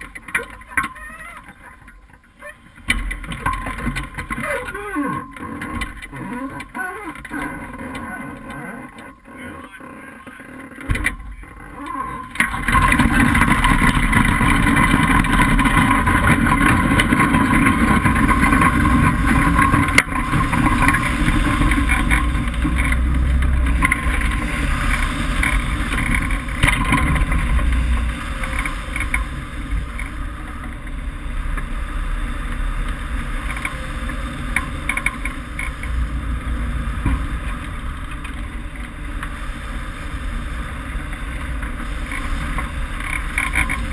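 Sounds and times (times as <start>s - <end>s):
wind rushing with deep rumble: 11.0s - 43.9s.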